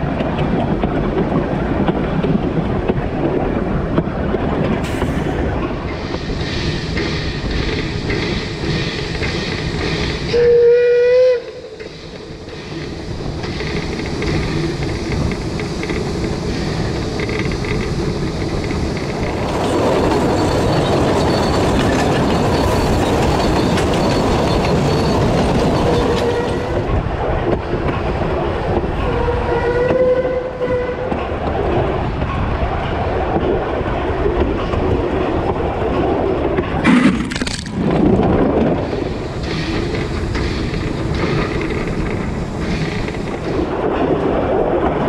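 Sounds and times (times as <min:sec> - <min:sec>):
steam train running: 0:00.0 - 0:45.0
steam whistle blast: 0:10.3 - 0:11.8, 0:29.1 - 0:31.0.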